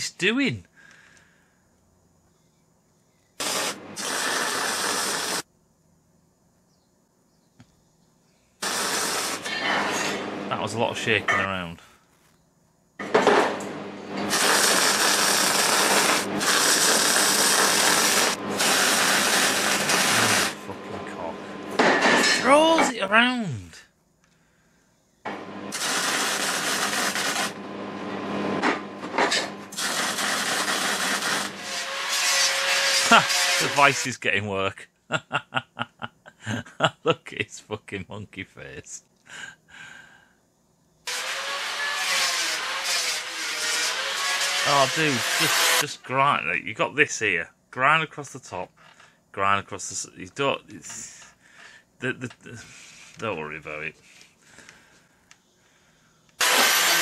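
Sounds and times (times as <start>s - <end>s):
welder arc crackling: 3.4s - 5.5s, 8.6s - 10.1s, 13.6s - 20.7s, 25.7s - 27.6s, 29.7s - 34.2s, 56.4s - 57.0s.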